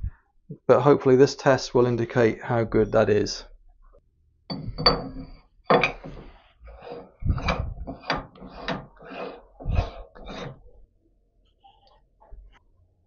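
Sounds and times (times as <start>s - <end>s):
locking ring scraping and knocking: 4.5s - 10.7s.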